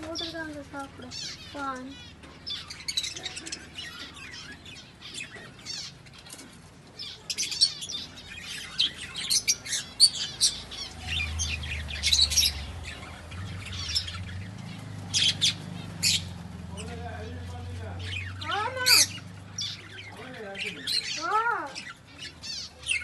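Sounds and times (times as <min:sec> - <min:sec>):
budgerigars chirping and squawking: 0:00.0 - 0:23.0.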